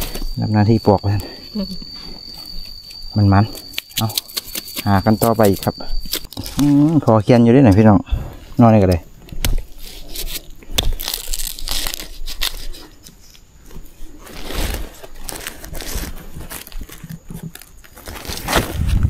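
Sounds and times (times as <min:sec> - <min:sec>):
dry plant material crackling: 0:08.6 - 0:13.4, 0:14.0 - 0:18.9.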